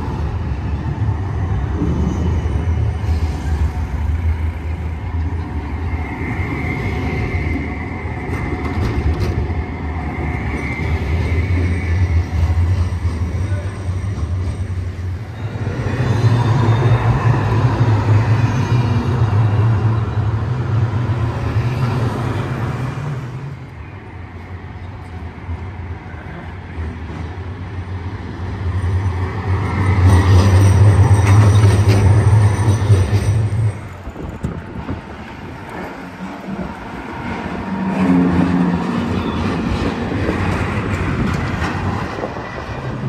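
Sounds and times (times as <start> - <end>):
tram rumbling past: 0.0 - 43.0.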